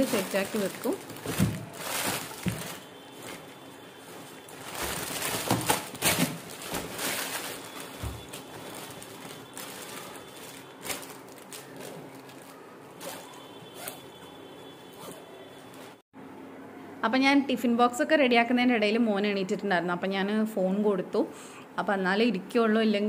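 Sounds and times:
plastic bag crinkling: 0:00.0 - 0:14.0
bag fabric rustling: 0:00.0 - 0:14.2.

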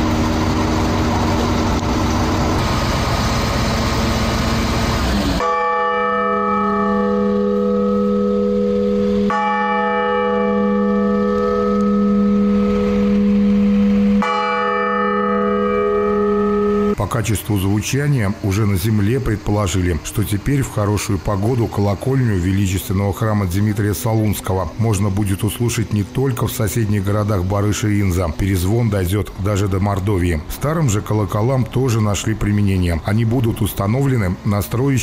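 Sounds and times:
loud steady noise: 0:00.0 - 0:05.6, 0:12.0 - 0:14.3, 0:15.7 - 0:35.0
church bell ringing: 0:00.0 - 0:35.0.

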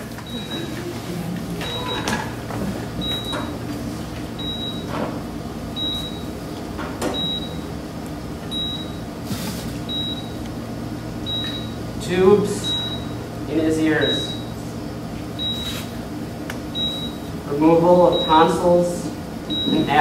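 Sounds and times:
steady low hum: 0:00.0 - 0:20.0
heart monitor beeping: 0:00.2 - 0:00.9, 0:01.6 - 0:02.2, 0:03.0 - 0:03.5, 0:04.4 - 0:04.9, 0:05.8 - 0:06.3, 0:07.2 - 0:07.6, 0:08.5 - 0:09.0, 0:09.9 - 0:10.4, 0:11.2 - 0:11.8, 0:15.4 - 0:15.8, 0:16.8 - 0:17.2, 0:18.1 - 0:18.5, 0:19.5 - 0:19.9.

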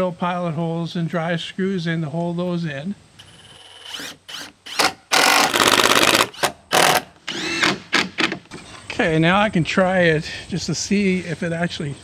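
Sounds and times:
cordless drill running: 0:03.2 - 0:07.8.

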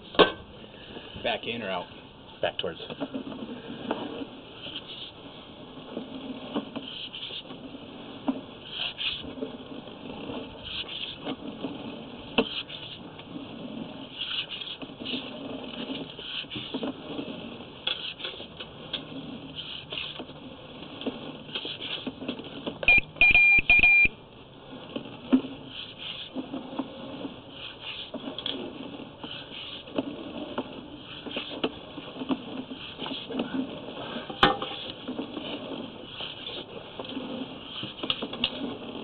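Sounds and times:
loud electronic beeps: 0:22.9 - 0:24.1.

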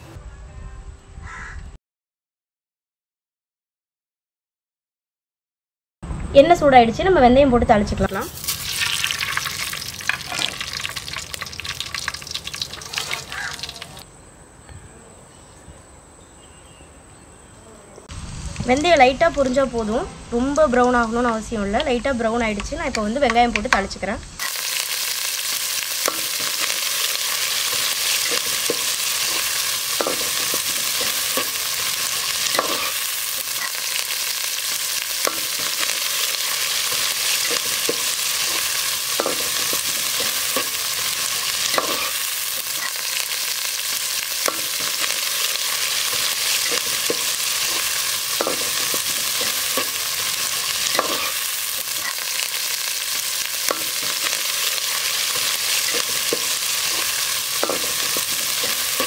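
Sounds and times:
onions frying in hot oil: 0:08.0 - 0:14.0, 0:18.1 - 0:59.0
metal ladle scraping a pot: 0:46.0 - 0:52.2.

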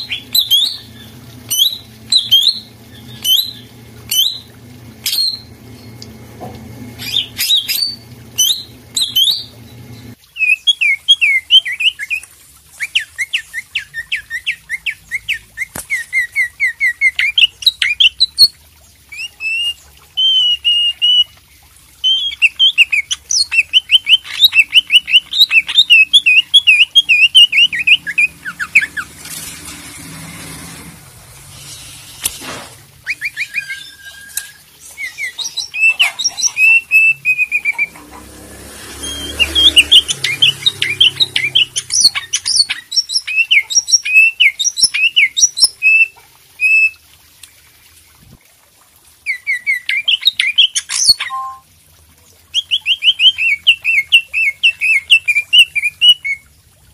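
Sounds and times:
bird chirping song: 0:00.0 - 0:12.3, 0:22.0 - 0:29.2, 0:33.0 - 0:38.4, 0:39.0 - 0:46.9, 0:49.3 - 0:51.6, 0:52.6 - 0:56.4.

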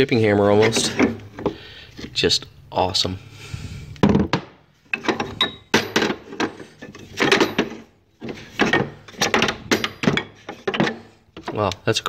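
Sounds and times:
hammers clattering in wooden toolbox: 0:00.5 - 0:02.2, 0:04.0 - 0:11.8.

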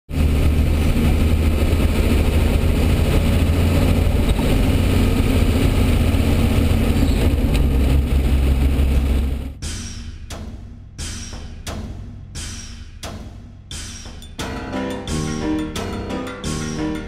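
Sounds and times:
diesel engine running: 0:00.1 - 0:09.6.

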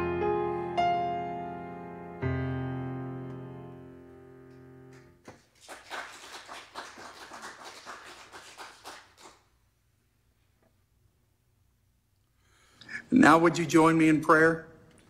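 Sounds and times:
piano chord: 0:00.0 - 0:05.2
small group clapping: 0:04.9 - 0:09.6.

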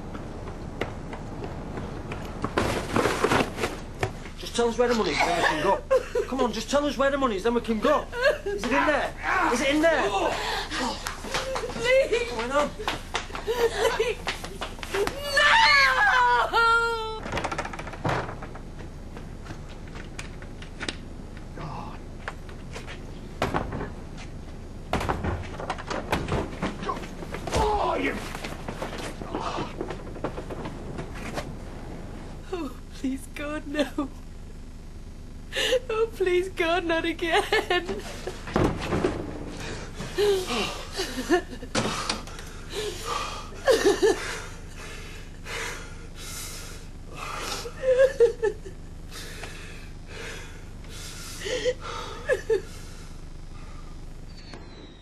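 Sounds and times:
low background noise: 0:00.0 - 0:55.0
woman sobbing: 0:05.0 - 0:06.3, 0:08.1 - 0:08.7, 0:10.0 - 0:14.3, 0:14.9 - 0:17.3, 0:35.5 - 0:38.1, 0:40.0 - 0:41.6, 0:42.7 - 0:44.6, 0:47.5 - 0:48.8, 0:51.4 - 0:52.9.

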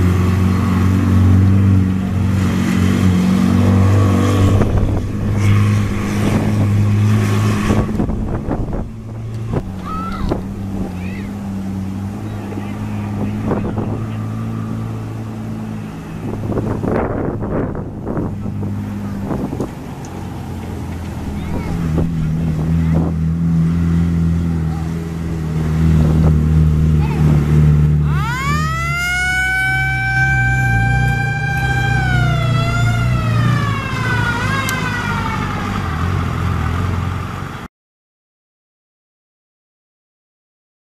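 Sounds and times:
vehicle engine running: 0:00.0 - 0:37.7
wind buffeting microphone: 0:03.6 - 0:23.6.

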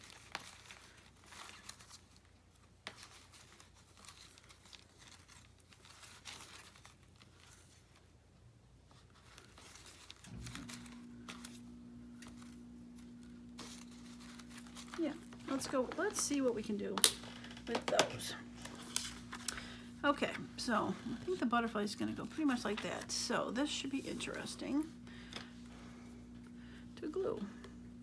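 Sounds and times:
paper rustling and crinkling: 0:00.0 - 0:26.5
steady low hum: 0:09.2 - 0:28.0.

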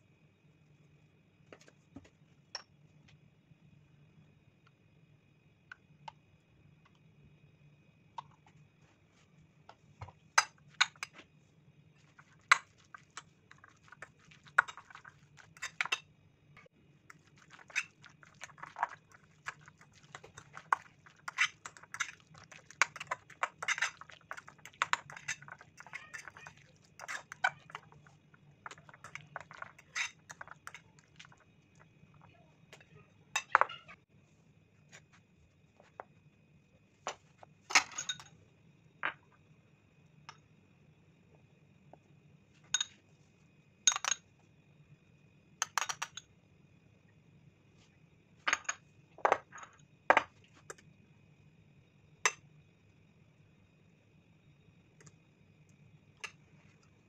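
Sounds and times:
metal spoon scraping ceramic bowl: 0:22.8 - 0:27.7, 0:28.8 - 0:30.8.

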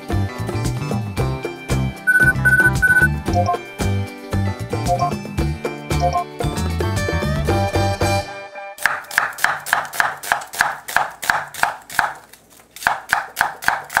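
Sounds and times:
background music: 0:00.0 - 0:08.9
knife chopping on cutting board: 0:08.8 - 0:12.2, 0:12.8 - 0:14.0.

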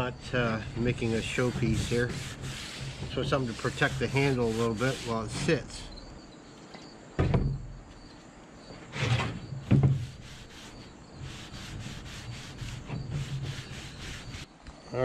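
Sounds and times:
paper towel rubbing wooden handle: 0:00.3 - 0:05.9, 0:09.7 - 0:14.5.

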